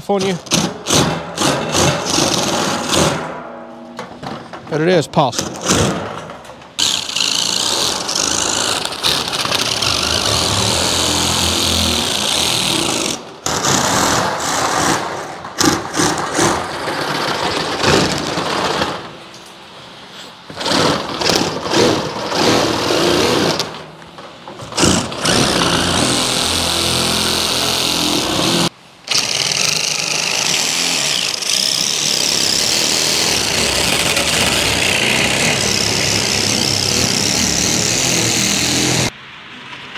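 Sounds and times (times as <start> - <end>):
impact driver cutting steel sheet: 0.2 - 3.5, 6.8 - 19.1, 24.7 - 39.1.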